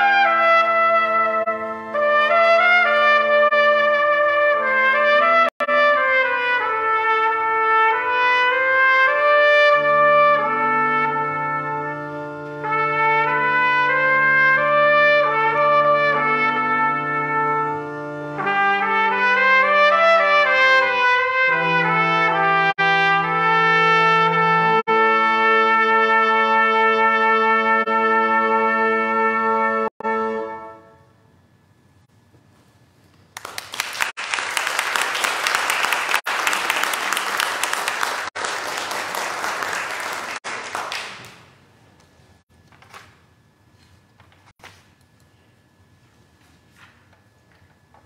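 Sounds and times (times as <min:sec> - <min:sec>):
trumpet playing a melody: 0:00.0 - 0:31.2
church organ bass notes: 0:00.0 - 0:31.8.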